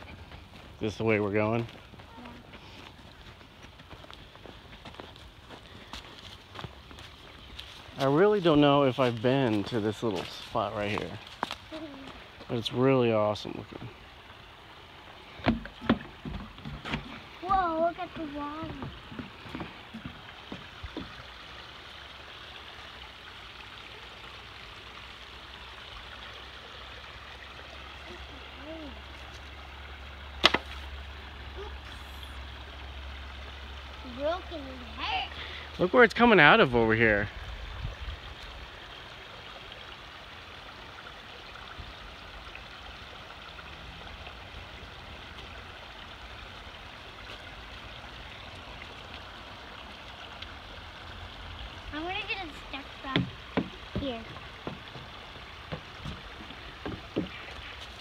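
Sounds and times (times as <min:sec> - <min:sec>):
footsteps on wooden footbridge: 0:00.0 - 0:08.1, 0:08.9 - 0:12.2, 0:15.4 - 0:21.2, 0:52.9 - 0:58.0
creek water rushing over rocks: 0:00.0 - 0:58.0.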